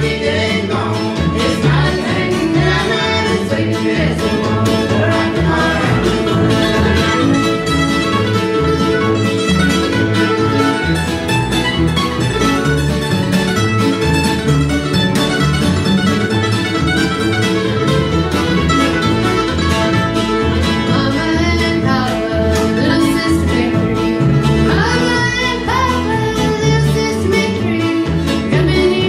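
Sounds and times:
voices singing: 0.0s - 8.0s, 20.9s - 29.0s
double bass plucking: 0.0s - 29.0s
string band playing: 0.0s - 29.0s.

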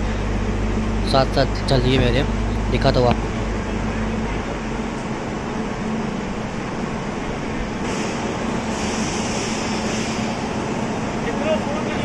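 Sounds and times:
hum of trains and machinery: 0.0s - 12.0s
hiss: 7.8s - 10.6s.

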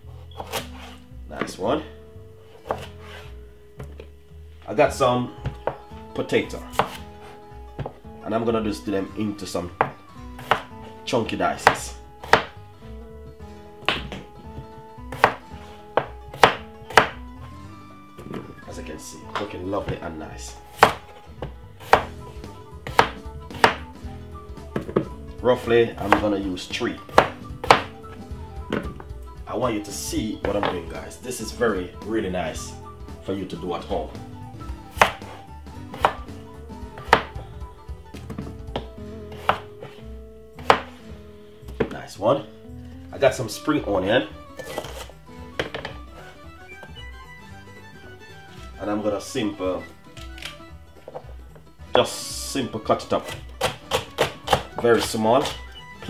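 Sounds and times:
soft background music: 0.0s - 56.0s
knife chopping on cutting board: 0.4s - 1.5s, 2.6s - 3.3s, 6.6s - 8.0s, 9.8s - 10.8s, 11.6s - 12.6s, 13.8s - 17.2s, 20.7s - 23.9s, 24.7s - 26.4s, 27.0s - 29.0s, 34.8s - 37.4s, 38.2s - 40.0s, 40.6s - 41.1s, 44.6s - 46.4s, 53.1s - 55.7s.

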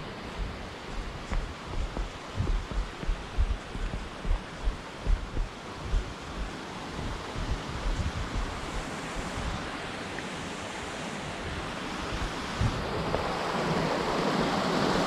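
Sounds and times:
wind buffeting thumps: 0.0s - 9.7s, 11.4s - 13.4s
wind blowing across microphone: 0.0s - 15.0s.

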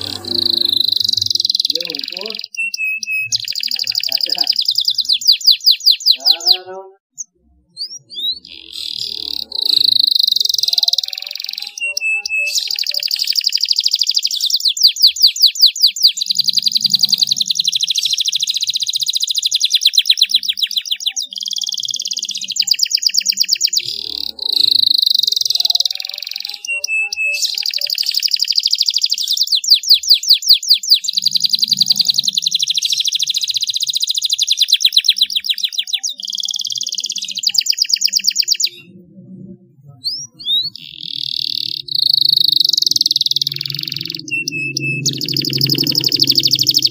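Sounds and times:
short chirps: 0.0s - 6.2s
canary singing trills: 0.0s - 46.9s.

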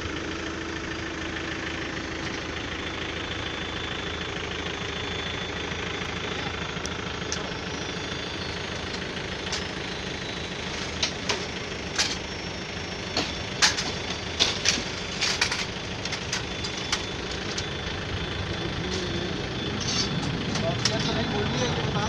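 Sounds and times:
engine running: 0.0s - 22.0s
sharp clicks and knocks: 13.1s - 17.7s.

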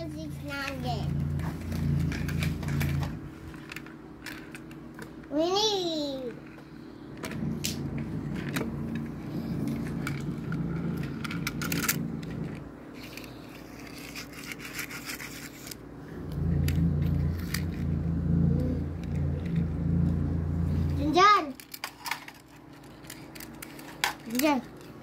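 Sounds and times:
toy car scraping on tile: 0.0s - 3.8s, 7.2s - 15.8s, 16.5s - 21.2s
low steady rumble: 0.0s - 14.2s, 15.8s - 21.4s.

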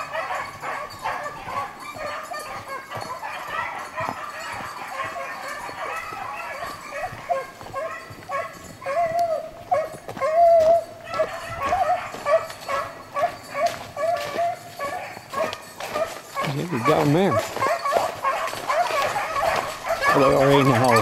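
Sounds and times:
hounds baying: 0.0s - 21.0s.

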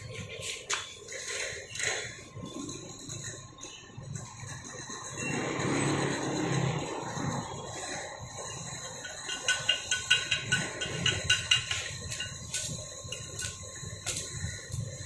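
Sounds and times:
welding arc crackling: 0.0s - 15.0s
welding arc snaps: 11.3s - 14.9s.

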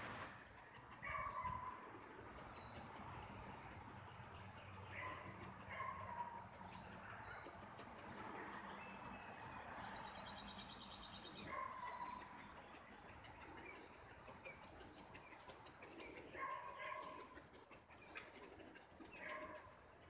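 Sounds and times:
birds chirping: 0.3s - 20.0s.

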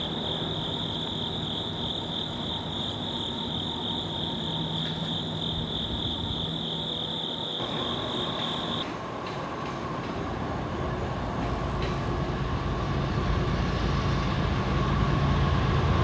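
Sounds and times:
crickets trilling: 0.0s - 8.9s.

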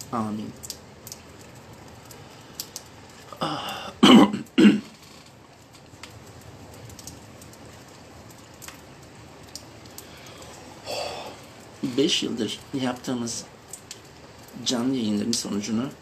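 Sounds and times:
man clearing throat: 3.4s - 4.9s
man coughing: 3.4s - 4.9s.

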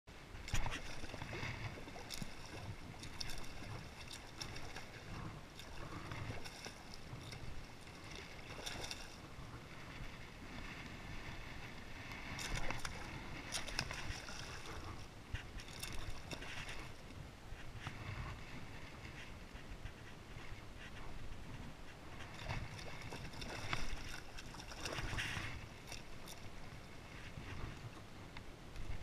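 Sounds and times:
water lapping against kayak hull: 0.1s - 29.0s
wind on microphone: 0.3s - 29.0s
fish thrashing and splashing: 0.5s - 9.2s, 12.4s - 15.0s, 22.4s - 26.5s.

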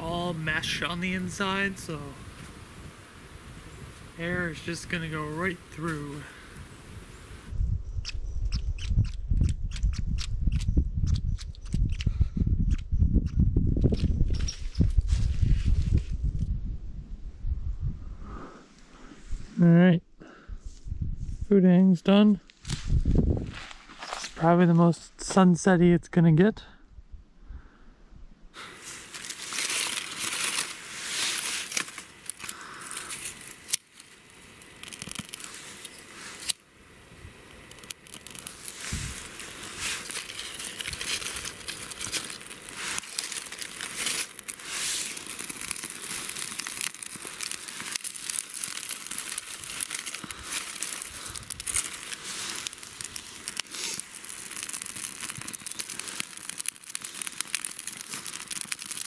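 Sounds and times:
kindling fire crackling: 0.0s - 8.2s, 20.2s - 25.4s, 28.5s - 59.0s
sharp clicks: 8.0s - 12.1s, 37.4s - 38.7s
sticks being handled: 28.8s - 36.6s, 37.4s - 59.0s.

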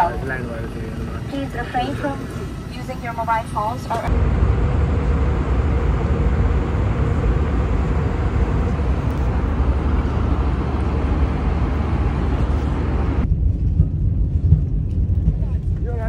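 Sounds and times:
faint steady hum: 0.0s - 15.8s
airliner low rumble: 0.0s - 16.0s.

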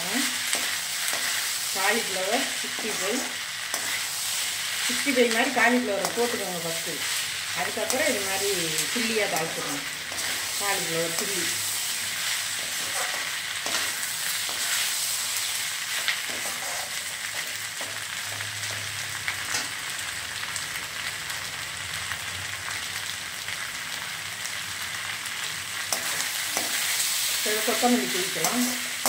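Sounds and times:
vegetables sizzling in a pan: 0.0s - 29.0s
metal ladle scraping pan: 12.1s - 14.9s, 16.3s - 17.2s.

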